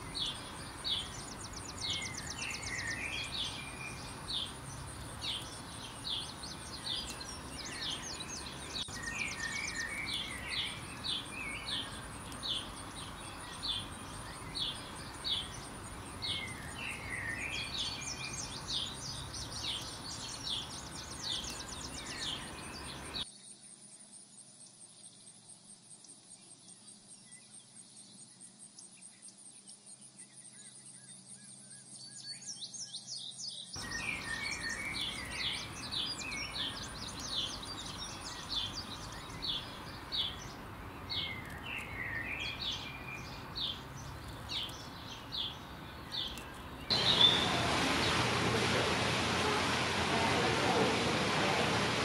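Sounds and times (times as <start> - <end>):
birds chirping: 0.0 - 23.2, 33.8 - 52.0
steady rushing noise: 46.9 - 52.0.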